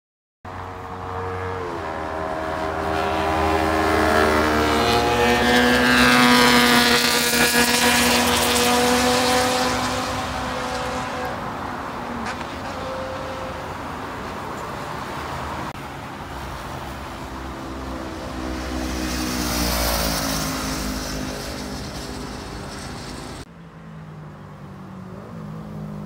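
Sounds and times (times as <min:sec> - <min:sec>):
motorcycle engine passing by: 0:00.9 - 0:11.4, 0:17.6 - 0:23.5.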